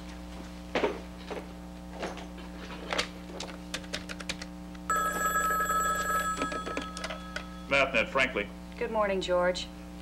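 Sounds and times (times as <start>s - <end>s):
telephone bell ringing: 4.9s - 8.0s.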